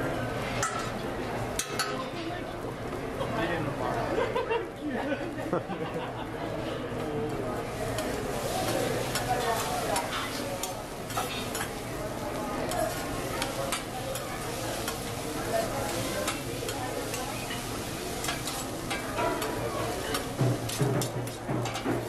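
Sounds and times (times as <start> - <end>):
rice sizzling on a griddle: 7.4 - 22.0
metal spatulas clicking and scraping: 8.0 - 11.8, 12.7 - 15.1, 15.9 - 22.0.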